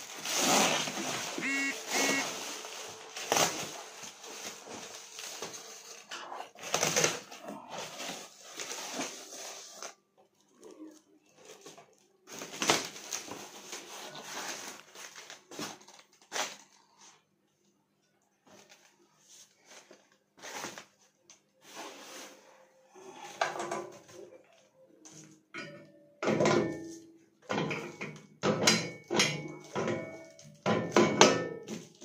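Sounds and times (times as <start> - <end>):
plastic wrap crinkling and rustling: 0.0 - 17.3, 18.4 - 22.8.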